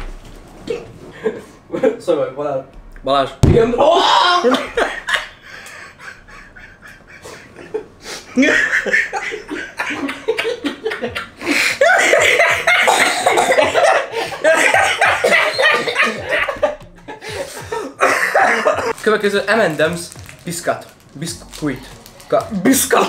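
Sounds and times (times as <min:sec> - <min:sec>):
people laughing: 0:03.8 - 0:19.0.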